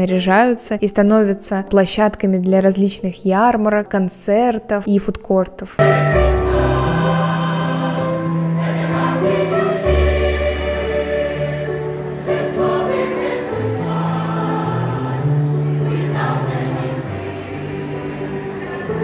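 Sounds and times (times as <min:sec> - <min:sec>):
choir singing: 0:05.8 - 0:19.0.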